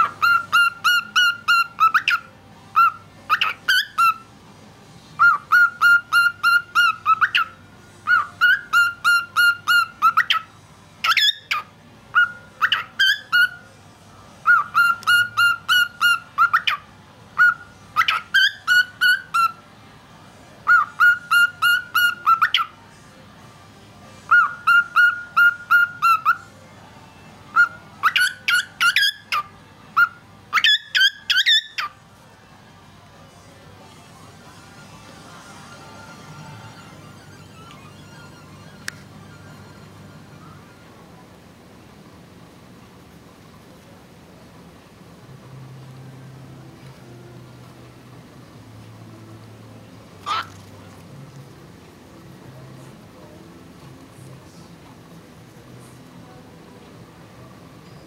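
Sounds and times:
cockatiel whistling a song: 0.0 - 4.3, 5.2 - 13.7, 14.4 - 19.6, 20.6 - 22.8, 24.3 - 26.5, 27.5 - 32.0, 34.6 - 41.0, 50.2 - 50.6.

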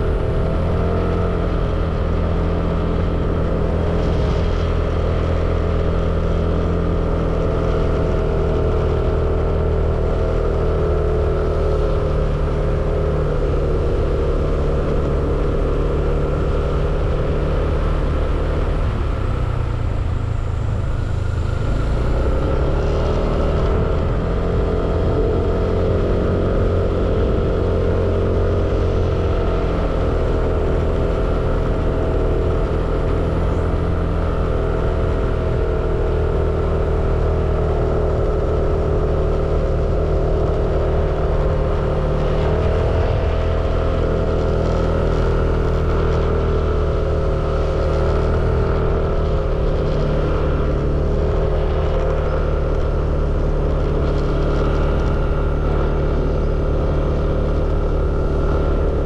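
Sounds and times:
vehicle engine running: 0.0 - 59.0.

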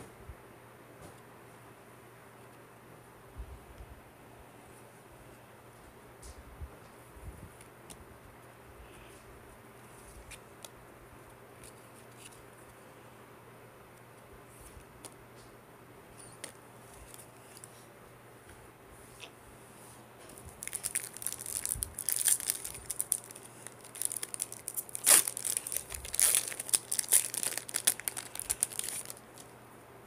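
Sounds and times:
foil wrapper crinkling: 20.5 - 29.5.

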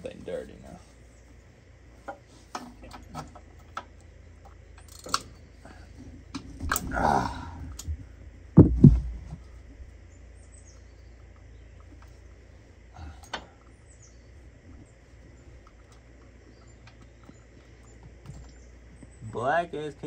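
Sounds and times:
short low thud: 8.6 - 9.6.

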